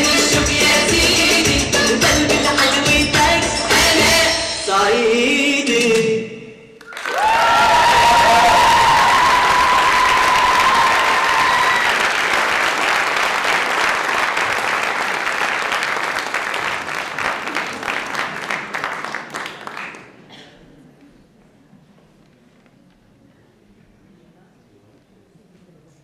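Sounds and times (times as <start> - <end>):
high cheering voices: 6.8 - 13.8
audience applauding: 6.8 - 20.5.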